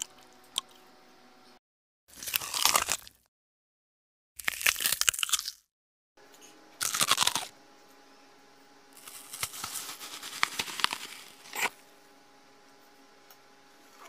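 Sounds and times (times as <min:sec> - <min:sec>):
fruit tearing and crackling: 0:02.1 - 0:03.3, 0:04.4 - 0:05.7, 0:06.8 - 0:07.5, 0:09.0 - 0:11.8.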